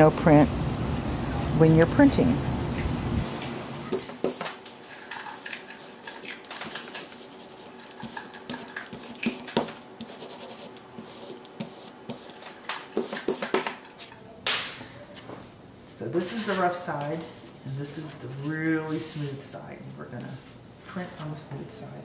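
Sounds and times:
rubber roller rolling ink on block: 0:03.9 - 0:12.4, 0:13.0 - 0:13.8.

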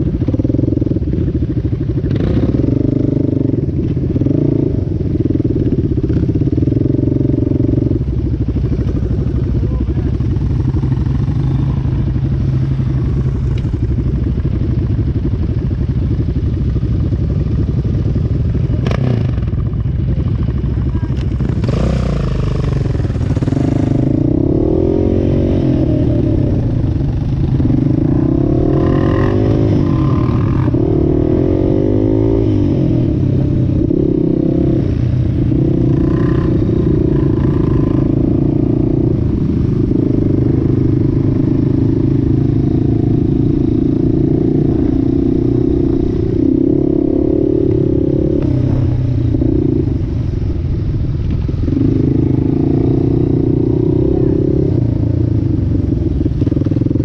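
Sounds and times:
off-road vehicle engine revving: 0:20.9 - 0:50.1, 0:51.6 - 0:57.0.

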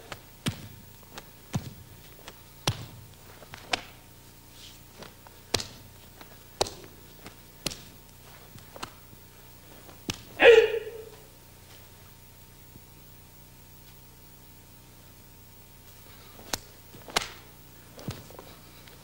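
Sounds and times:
martial arts snaps and thuds: 0:00.0 - 0:04.0, 0:04.9 - 0:09.0, 0:09.8 - 0:10.8, 0:16.4 - 0:18.4.

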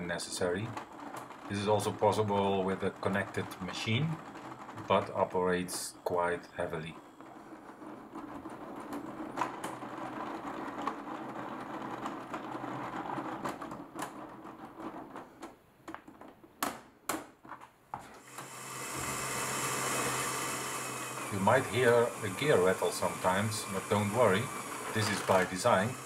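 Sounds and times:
plastic gears clicking and rattling: 0:00.0 - 0:17.7, 0:18.3 - 0:26.0
motor whir: 0:18.2 - 0:26.0.

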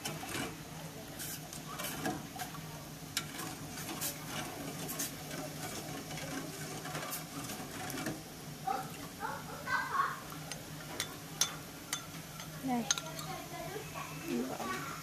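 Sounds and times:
ladle clinking against pot: 0:10.5 - 0:13.4.

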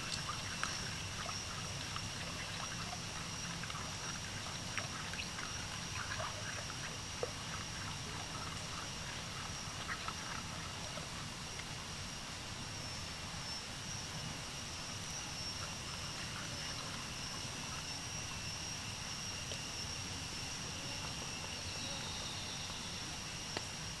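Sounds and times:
high-pitched insect drone: 0:00.0 - 0:24.0
low background noise: 0:00.0 - 0:24.0.

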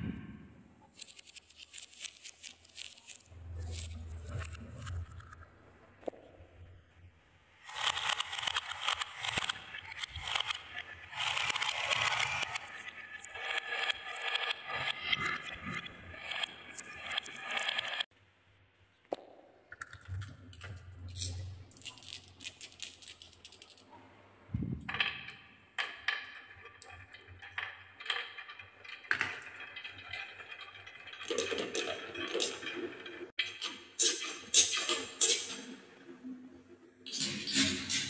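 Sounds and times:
marbles clattering down wooden track: 0:24.9 - 0:33.3.

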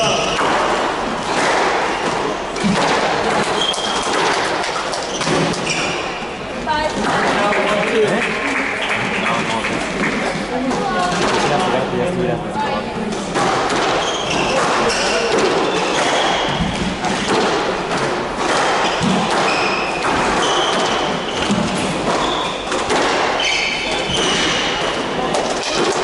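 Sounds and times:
squash ball thuds: 0:00.0 - 0:06.1, 0:13.3 - 0:26.0
shoes squeaking on wooden floor: 0:03.4 - 0:04.1, 0:04.8 - 0:06.4, 0:14.0 - 0:17.3, 0:18.8 - 0:22.8, 0:23.4 - 0:24.8.

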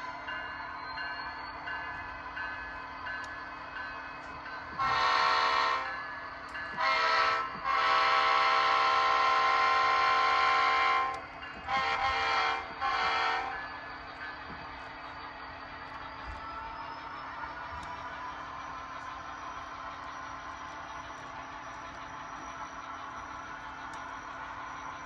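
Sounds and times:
model locomotive horn blasts: 0:04.7 - 0:06.0, 0:06.7 - 0:13.7.

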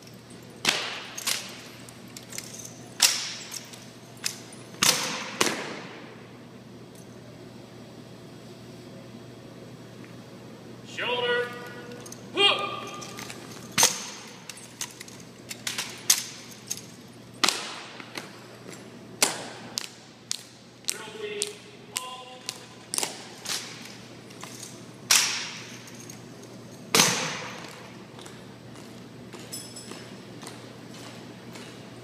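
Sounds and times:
rifles slapped and knocked: 0:00.6 - 0:01.6, 0:02.2 - 0:05.8, 0:25.1 - 0:26.1.

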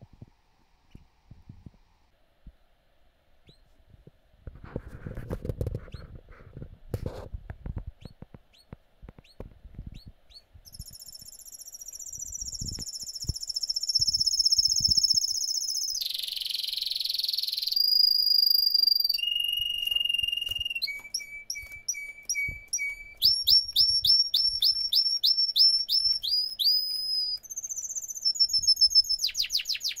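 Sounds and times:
canary singing: 0:03.4 - 0:03.6, 0:08.0 - 0:30.0.

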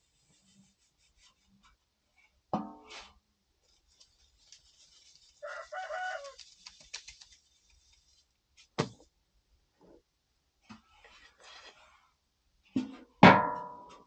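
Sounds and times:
rooster crowing: 0:05.4 - 0:06.4.

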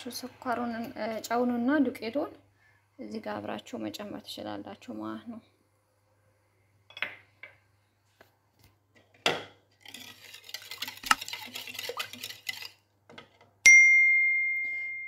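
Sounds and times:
wire whisk clacking in bowl: 0:09.8 - 0:12.8
sharp bright ding: 0:13.7 - 0:15.0.

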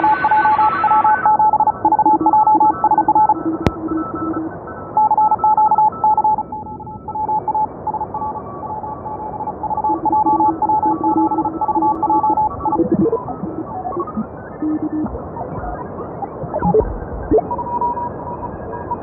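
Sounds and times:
morse code beeping tones: 0:00.0 - 0:15.8, 0:16.6 - 0:18.1
radio band hiss: 0:11.2 - 0:18.8.

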